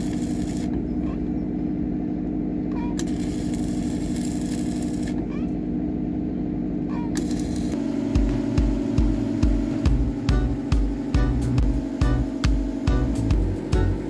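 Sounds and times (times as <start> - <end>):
electric arc crackling and hissing: 0.0 - 0.8, 3.0 - 5.2, 7.2 - 14.0
steady engine-like hum: 0.0 - 14.0.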